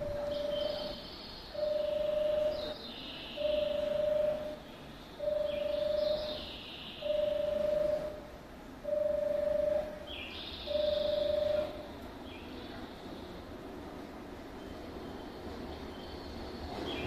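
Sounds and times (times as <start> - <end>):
platform warning beep: 1.6 - 2.8, 3.4 - 4.6, 5.2 - 6.3, 7.1 - 8.2, 8.9 - 10.0, 10.7 - 11.8.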